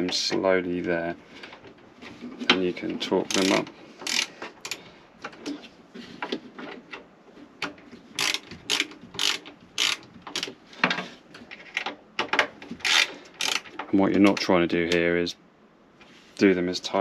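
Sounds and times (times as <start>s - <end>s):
hand ratchet clicking: 3.2s - 4.8s, 8.2s - 10.5s, 12.8s - 13.8s.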